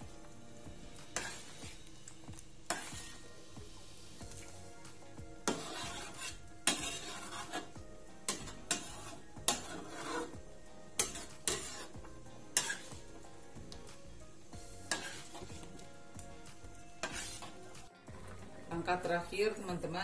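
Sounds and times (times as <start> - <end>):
ladle scraping metal pan: 1.1 - 1.8, 2.7 - 3.3, 5.4 - 10.4, 11.0 - 13.0, 14.8 - 15.7, 17.0 - 17.6.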